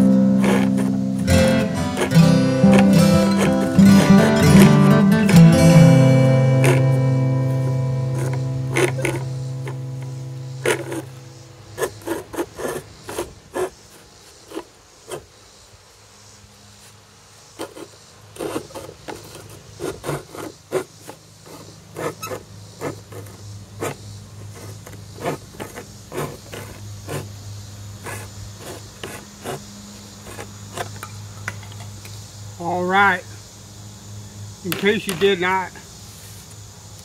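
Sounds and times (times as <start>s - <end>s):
coping saw rasping strokes: 0.1s - 15.3s, 17.6s - 27.4s, 28.0s - 31.0s.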